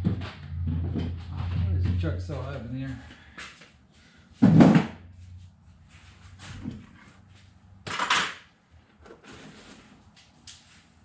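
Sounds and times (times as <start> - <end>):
heavy low thump: 0.0 - 3.3.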